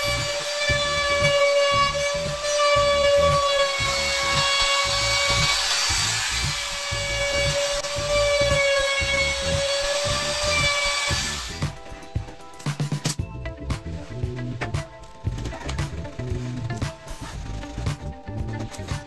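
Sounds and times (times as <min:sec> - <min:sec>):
trim router whining: 0:00.0 - 0:11.9
background music with beat: 0:00.0 - 0:19.0.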